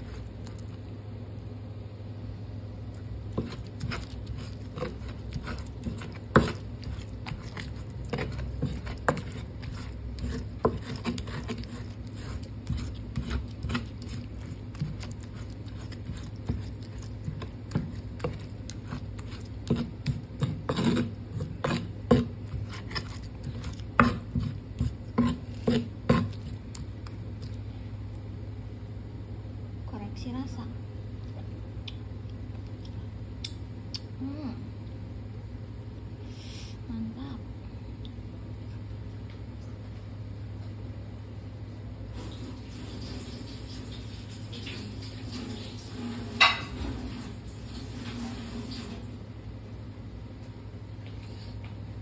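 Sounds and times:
wet squishing and scraping: 0.0s - 0.8s, 2.9s - 28.2s.

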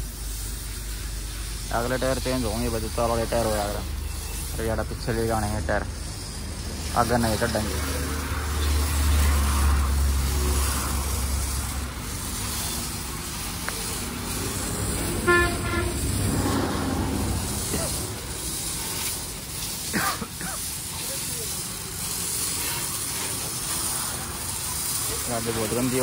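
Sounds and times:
pressure washer spray hissing: 0.0s - 26.0s
vehicle horn honk: 15.0s - 16.3s.

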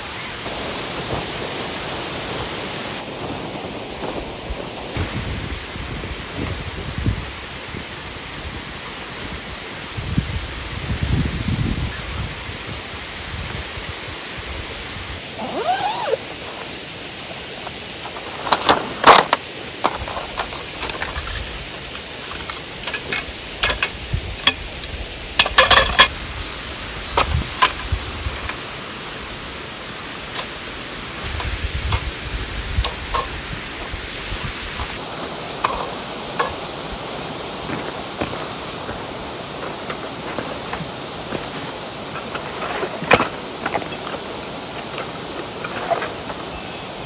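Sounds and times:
waterfall rushing: 0.0s - 47.0s
metal tent poles clacking: 18.2s - 24.7s, 25.4s - 26.2s, 35.0s - 36.7s, 42.1s - 46.4s.

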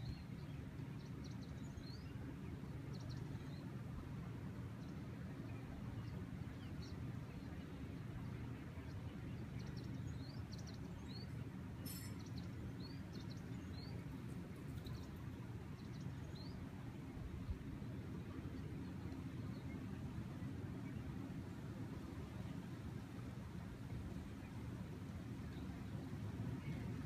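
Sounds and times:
low rumble of breeze: 0.0s - 27.0s
small birds chirping: 4.7s - 16.6s.

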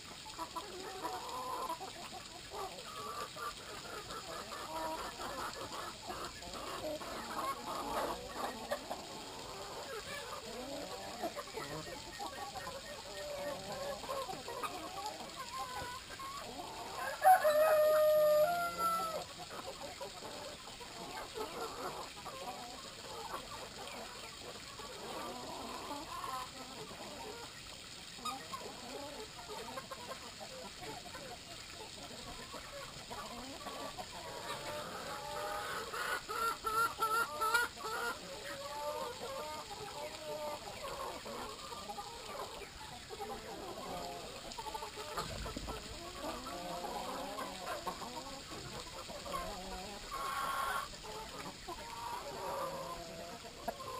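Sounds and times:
chickens clucking: 0.0s - 53.9s
repeated chicken calls: 0.0s - 53.9s
rooster crowing: 17.0s - 19.0s.

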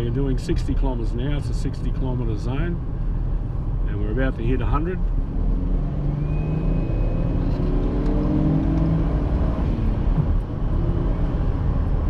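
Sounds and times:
car engine accelerating: 5.0s - 12.0s.

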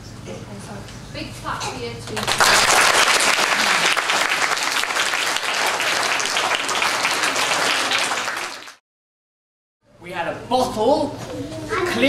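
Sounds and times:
children applauding: 2.2s - 8.8s.

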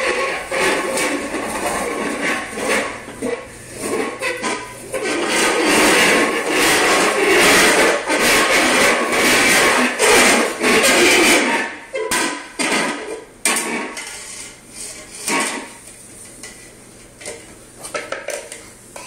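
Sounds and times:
bowls scraping on tile floor: 0.0s - 19.0s.

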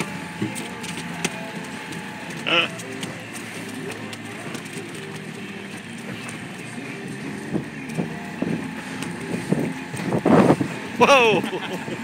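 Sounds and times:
outboard motor running: 0.0s - 12.0s
wind on microphone: 7.5s - 11.0s.

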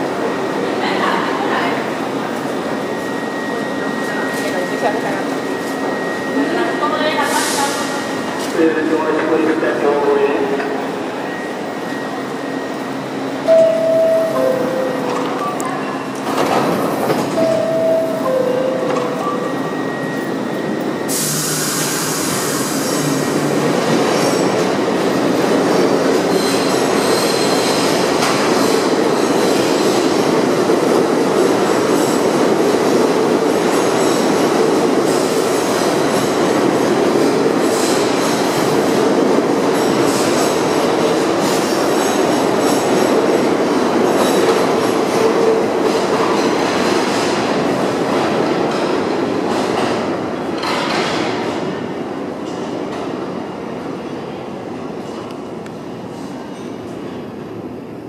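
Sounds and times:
subway train pulling out: 0.0s - 58.0s
two-note door chime: 13.5s - 15.6s, 17.4s - 19.8s
wheel squeal: 26.3s - 27.8s.

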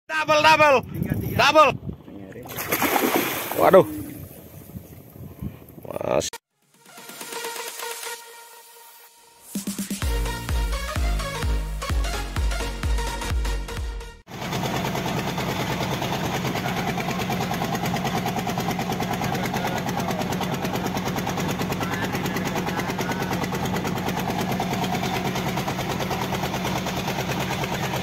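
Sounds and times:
boat engine running: 14.3s - 28.0s.

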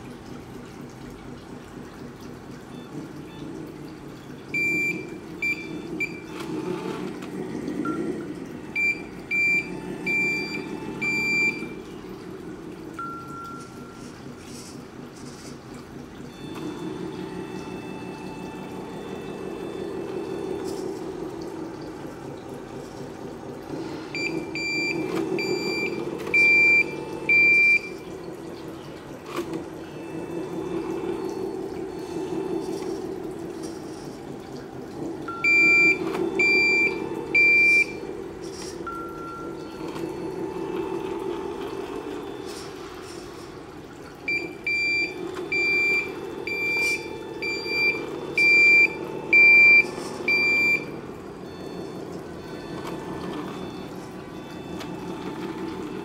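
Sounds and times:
reversing beeps: 4.5s - 6.4s, 8.8s - 11.8s, 13.0s - 14.1s, 24.1s - 28.0s, 35.3s - 38.0s, 38.6s - 40.2s, 44.3s - 56.0s.

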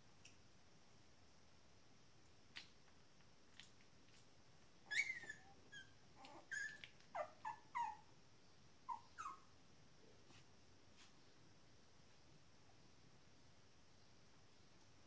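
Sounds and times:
puppies squeaking and whimpering: 4.9s - 8.0s, 8.9s - 9.4s.

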